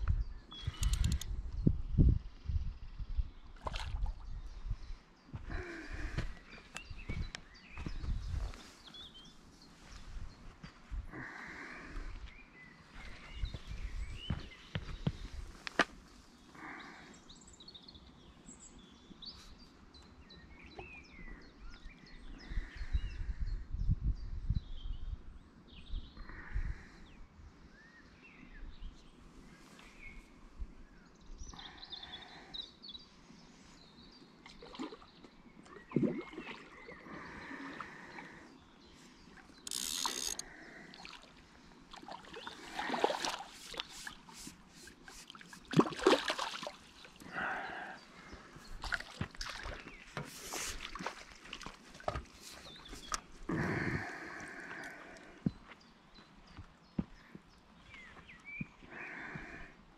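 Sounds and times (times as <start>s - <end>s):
small birds singing: 0.0s - 59.9s
fish splashing and thrashing: 41.9s - 47.2s, 48.8s - 53.3s.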